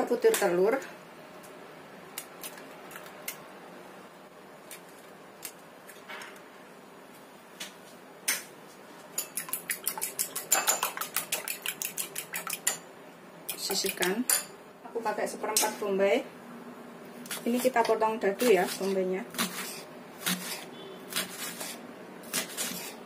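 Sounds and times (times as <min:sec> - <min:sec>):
eggs beaten in bowl clicking: 0:09.2 - 0:12.8, 0:13.5 - 0:14.4.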